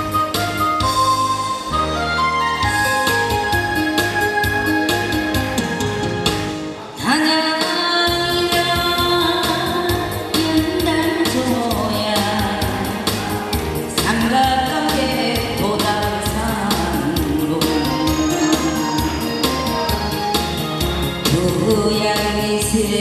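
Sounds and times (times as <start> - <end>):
backing track with drum beat: 0.0 - 23.0
woman singing with vibrato: 7.0 - 20.4, 21.2 - 23.0.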